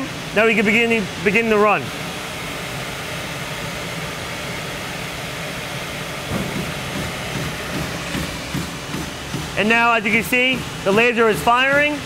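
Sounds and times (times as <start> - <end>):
steady machine noise: 0.0 - 12.0
stamping press low knocks: 6.3 - 9.6.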